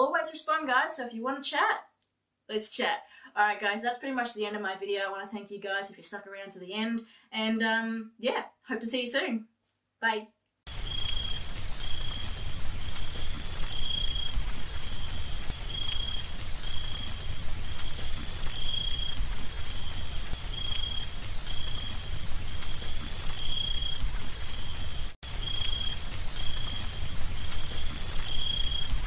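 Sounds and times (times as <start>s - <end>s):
rain falling: 10.7s - 29.0s.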